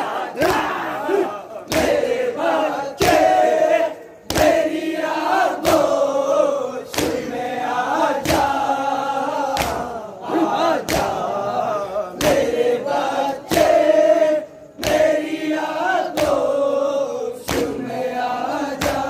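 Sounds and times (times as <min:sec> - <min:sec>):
men chanting in unison: 0:00.0 - 0:19.0
hands slapping chests: 0:00.4 - 0:02.2, 0:04.2 - 0:04.7, 0:06.8 - 0:07.3, 0:08.2 - 0:08.6, 0:09.5 - 0:10.0, 0:10.7 - 0:11.2, 0:14.8 - 0:15.2, 0:16.0 - 0:16.5, 0:17.4 - 0:17.8, 0:18.7 - 0:19.0.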